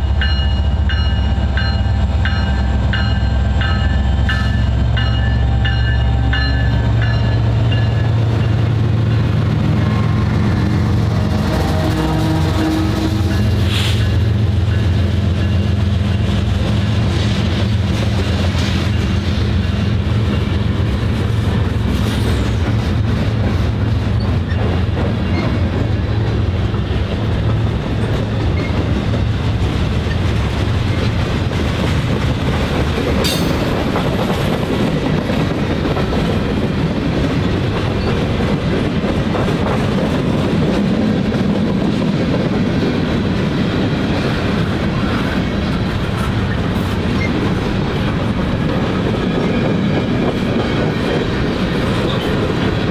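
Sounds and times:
train wheels rumbling on rails: 0.0 - 52.9.

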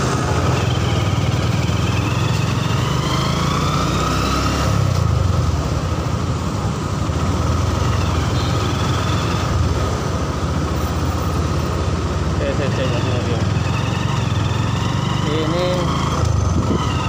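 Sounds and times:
traffic: 0.0 - 17.0
motorcycle engine rumble: 4.8 - 17.0.

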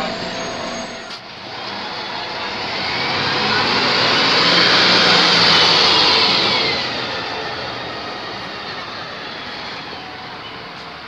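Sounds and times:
bus diesel engine passing: 0.0 - 11.0.

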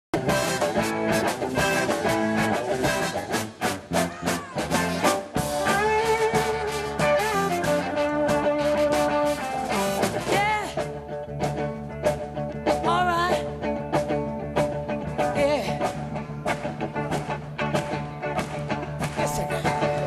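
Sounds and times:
electric guitar and bass: 0.1 - 20.0
drums on a quick beat: 0.2 - 20.0
person singing: 19.2 - 20.0.

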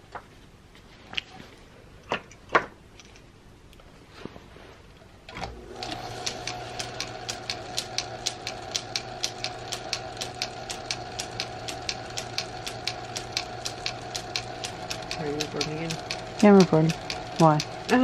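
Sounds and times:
lathe motor humming and whining: 5.3 - 18.0
regular ticking: 5.7 - 18.0.

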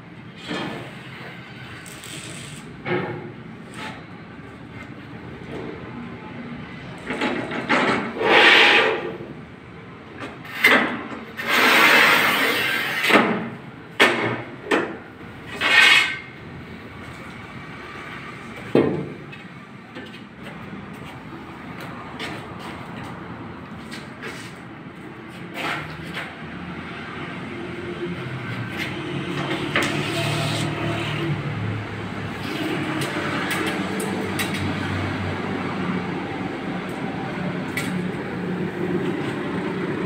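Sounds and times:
tile cutter scraping across tile: 8.2 - 9.1, 11.4 - 13.1, 15.5 - 16.2, 29.7 - 31.2.

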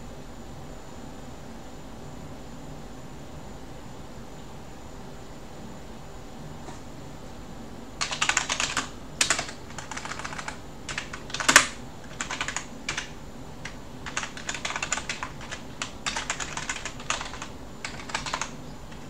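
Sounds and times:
typing on a keyboard: 8.0 - 19.0.

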